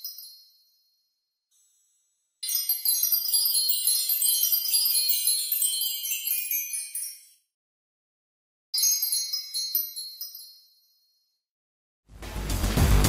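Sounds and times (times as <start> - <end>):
tinkling fairy bells: 0.0 - 7.6, 8.8 - 11.4.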